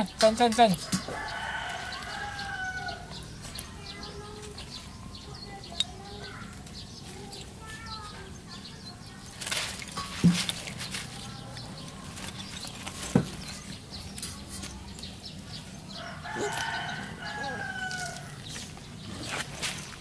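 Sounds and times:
rooster crowing: 0:01.0 - 0:03.1, 0:16.0 - 0:18.4.

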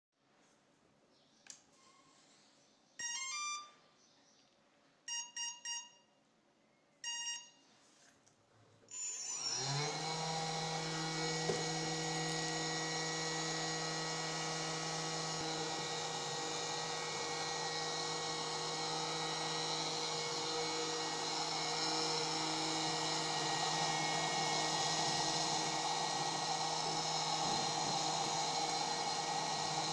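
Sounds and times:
vacuum motor whine: 0:09.0 - 0:29.9.

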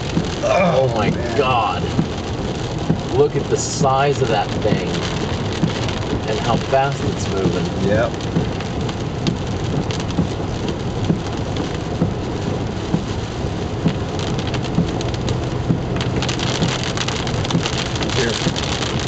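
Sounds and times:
tyre and engine noise: 0:00.0 - 0:08.6
heavy rain on car windshield: 0:00.0 - 0:19.0.

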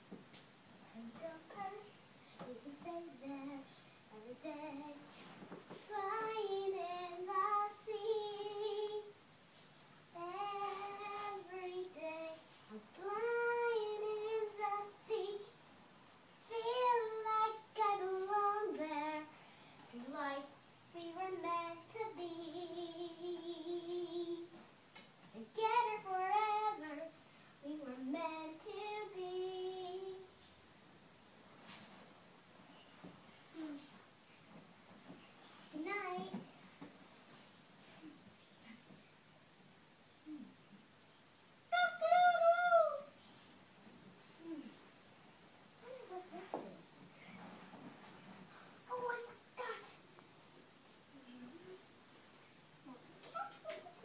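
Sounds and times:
girl singing: 0:00.9 - 0:09.2, 0:10.1 - 0:15.6, 0:16.4 - 0:24.6, 0:25.3 - 0:30.4, 0:35.6 - 0:36.5, 0:41.7 - 0:43.4.

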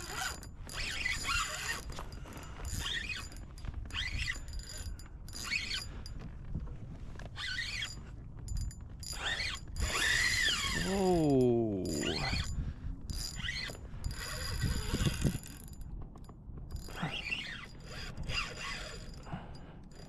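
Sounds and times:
fishing reel drag buzzing: 0:09.1 - 0:11.2, 0:13.2 - 0:15.5, 0:16.9 - 0:19.4.

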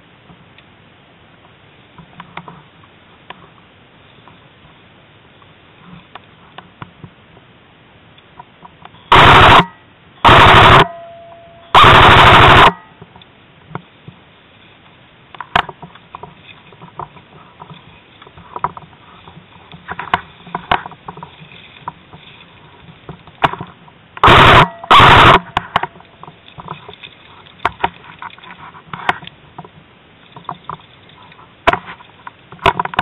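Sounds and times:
airsoft gun full-auto bursts: 0:09.1 - 0:10.9, 0:11.8 - 0:12.8, 0:24.2 - 0:25.5.

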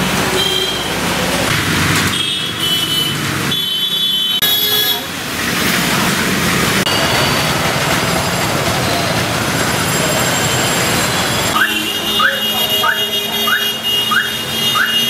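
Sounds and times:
road traffic noise: 0:00.0 - 0:15.0
car horn blasts: 0:11.5 - 0:15.0.

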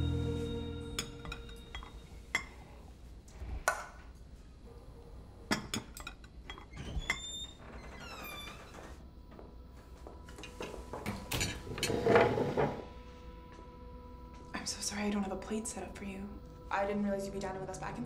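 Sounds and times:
soft ambient music: 0:00.0 - 0:03.0, 0:09.2 - 0:18.0
dishes and cutlery clinking: 0:01.0 - 0:02.6, 0:10.3 - 0:12.8.

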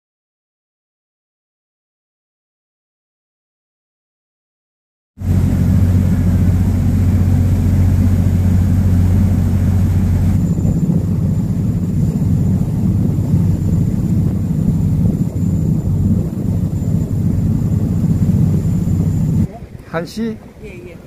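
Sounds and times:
boat engine rumbling: 0:05.2 - 0:21.0.

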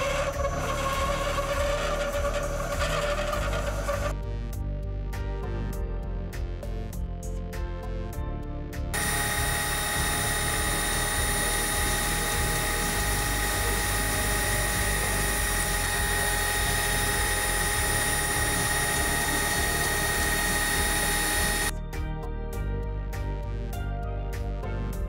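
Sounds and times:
milling machine spindle whining: 0:00.0 - 0:04.1, 0:09.0 - 0:21.7
music: 0:00.0 - 0:25.0.

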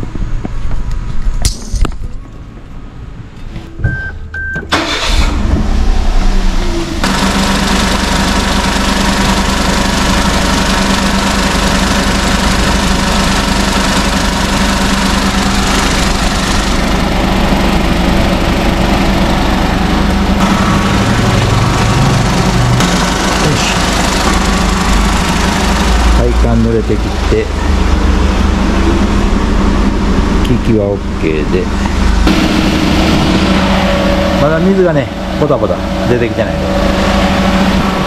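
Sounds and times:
car engine starting and idling: 0:03.9 - 0:38.0
air conditioning rush: 0:04.7 - 0:38.0.

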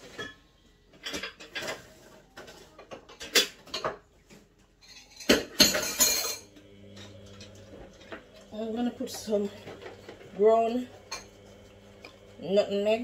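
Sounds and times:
kitchen utensils clinking: 0:00.0 - 0:13.0
clattering rattle: 0:04.8 - 0:08.2.

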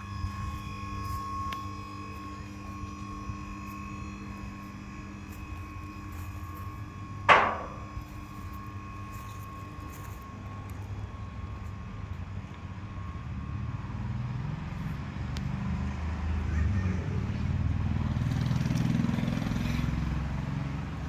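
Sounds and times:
hydraulic pump humming: 0:00.0 - 0:14.1.

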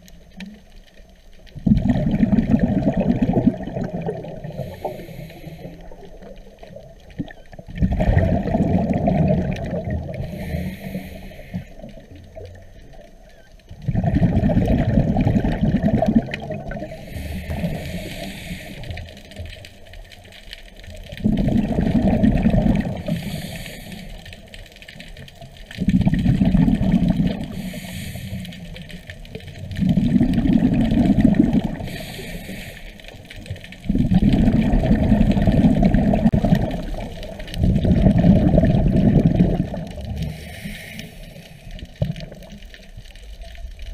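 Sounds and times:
exhaled bubbles rumbling underwater: 0:00.0 - 0:43.9
regulator inhalation hiss: 0:04.4 - 0:06.3, 0:10.2 - 0:12.2, 0:16.8 - 0:19.5, 0:22.8 - 0:24.6, 0:27.4 - 0:29.0, 0:31.6 - 0:33.5, 0:40.2 - 0:41.8.

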